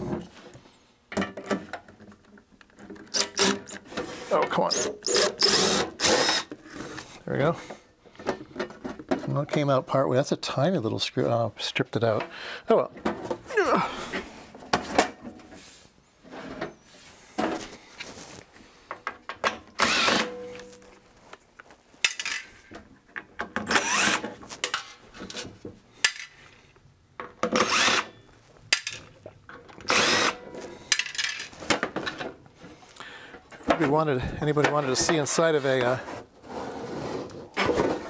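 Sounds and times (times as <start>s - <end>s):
impact driver bursts: 3.1s - 3.8s, 4.7s - 6.5s, 19.8s - 20.4s, 23.7s - 24.3s, 27.5s - 28.1s, 29.9s - 30.4s.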